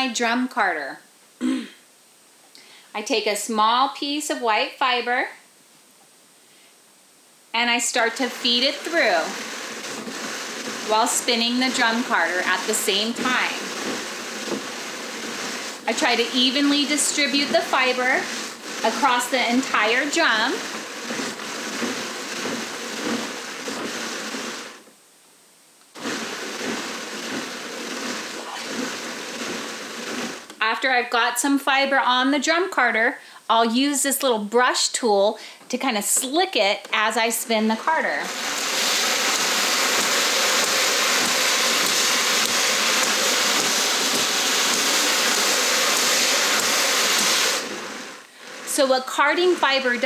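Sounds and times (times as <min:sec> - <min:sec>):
drum carder scratchy hiss: 0:07.4 - 0:32.4, 0:36.1 - 0:50.0.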